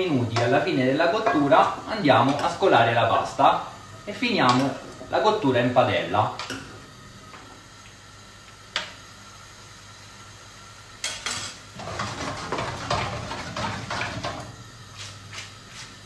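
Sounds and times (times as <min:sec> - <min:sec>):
utensils clattering in metal pan: 0:00.0 - 0:03.5, 0:04.2 - 0:06.8, 0:11.0 - 0:14.6.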